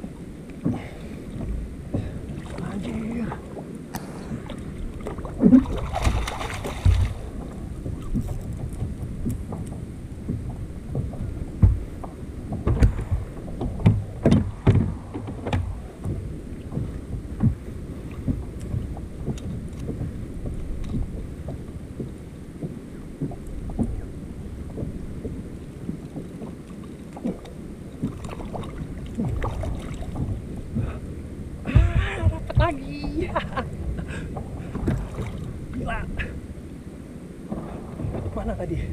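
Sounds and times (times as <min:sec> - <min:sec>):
water lapping against kayak hull: 0:00.0 - 0:38.9
wind buffeting microphone: 0:00.0 - 0:38.9
knocks and clicks: 0:06.8 - 0:17.6.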